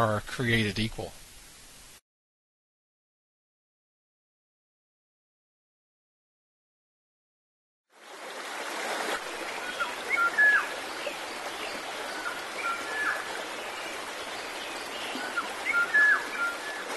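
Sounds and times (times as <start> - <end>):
running stream water: 7.9 - 16.9.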